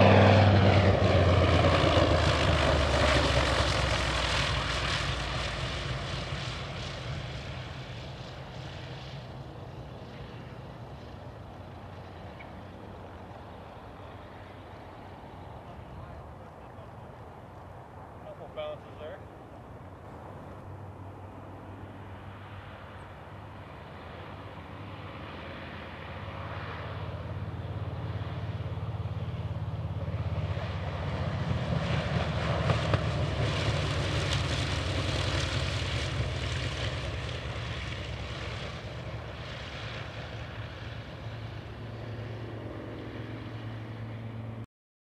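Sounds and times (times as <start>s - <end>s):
aircraft radial engine: 0.0s - 44.7s.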